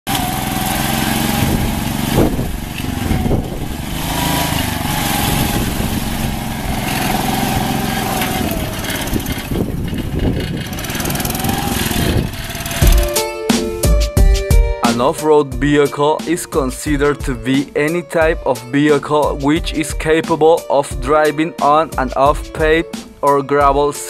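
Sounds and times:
water splashing around wheels: 0.1 - 13.1
small engine running under load: 0.1 - 13.2.

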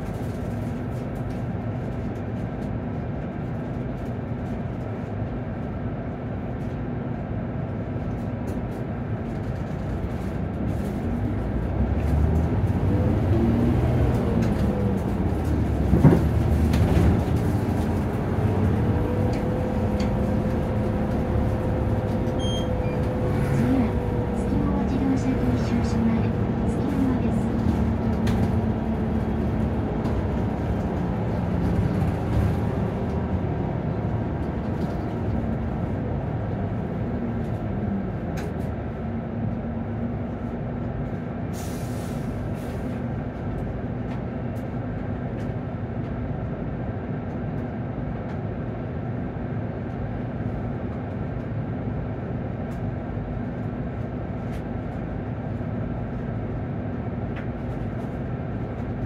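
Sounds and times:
bus engine drone: 0.0 - 59.0.

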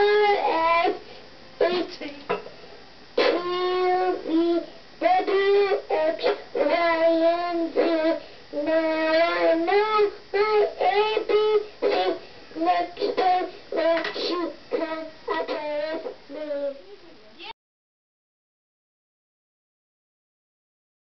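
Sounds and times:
girl singing: 0.0 - 1.0, 3.2 - 17.0.

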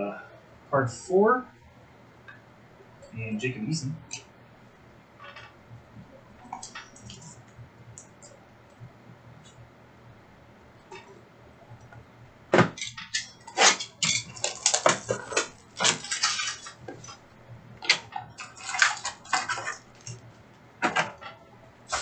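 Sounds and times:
card packs crinkling: 13.6 - 17.2.

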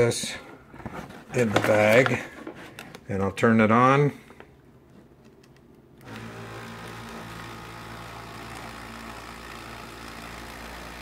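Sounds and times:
electric flour sifter motor hum: 6.0 - 11.0.

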